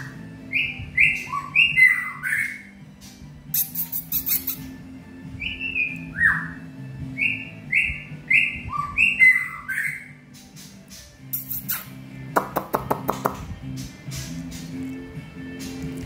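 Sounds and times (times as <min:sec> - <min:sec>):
bird singing whistled notes: 0:00.0 - 0:12.0
sharp bird clicks: 0:03.5 - 0:04.7, 0:10.3 - 0:14.8.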